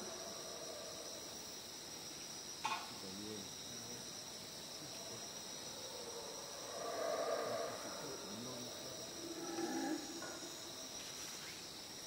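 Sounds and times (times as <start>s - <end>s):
distant howler monkeys roaring: 0.0s - 1.3s, 5.0s - 10.9s
night insects trilling: 0.0s - 12.0s.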